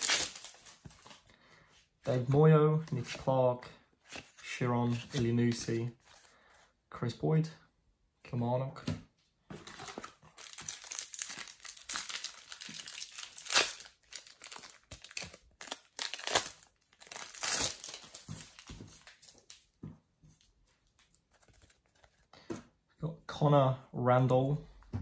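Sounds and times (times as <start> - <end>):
plastic wrapper tearing and crinkling: 0.0 - 1.2, 9.6 - 19.6.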